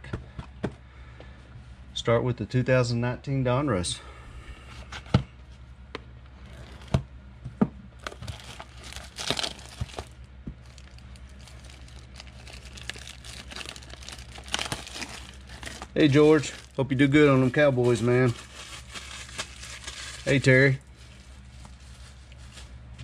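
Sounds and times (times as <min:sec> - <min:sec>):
plastic shrink wrap crinkling: 0:08.0 - 0:23.0.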